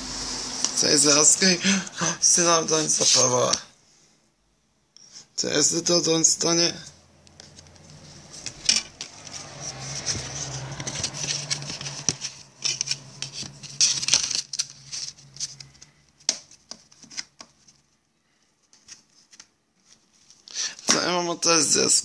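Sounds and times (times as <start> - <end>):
low steady hum: 0.0 - 3.3.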